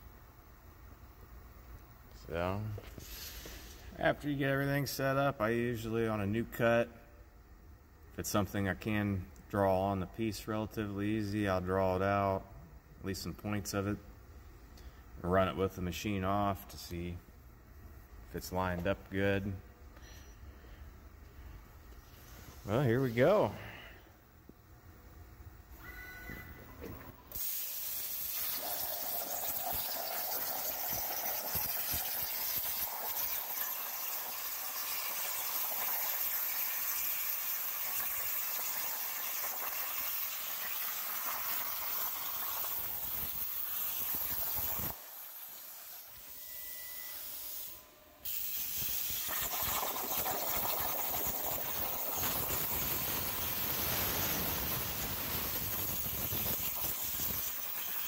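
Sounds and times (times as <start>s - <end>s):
plasma cutter arc hissing: 27.3s - 58.0s.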